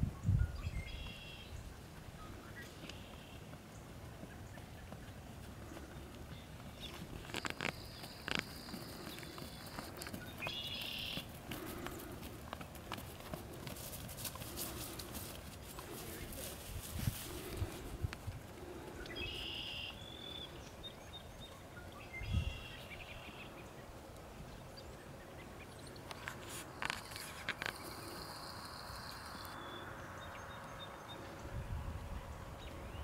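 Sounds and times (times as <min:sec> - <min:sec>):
bird chirps: 0:00.2 - 0:03.5, 0:06.4 - 0:11.3, 0:19.0 - 0:23.7.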